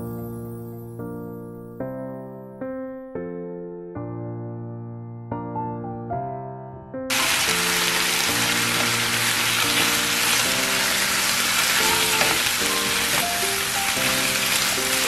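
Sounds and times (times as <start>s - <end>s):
soft piano music: 0.0s - 15.0s
meat sizzling in a frying pan: 7.1s - 15.0s
wooden spatulas stirring: 11.8s - 13.3s.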